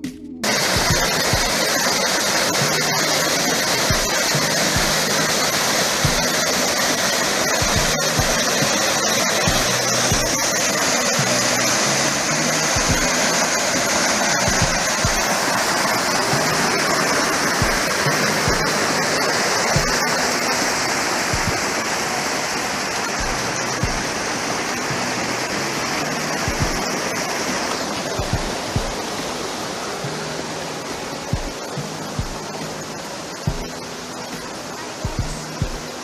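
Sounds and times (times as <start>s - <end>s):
creek water rushing over rocks: 0.4s - 36.0s
low thumps: 23.2s - 24.3s, 26.5s - 27.0s, 28.2s - 29.4s, 31.3s - 32.5s.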